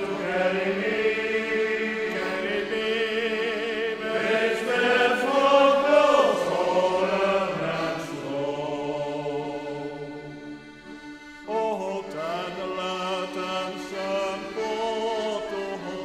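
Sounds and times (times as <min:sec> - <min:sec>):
accordion: 0:00.0 - 0:16.0
male choir singing a sea shanty: 0:00.0 - 0:16.0.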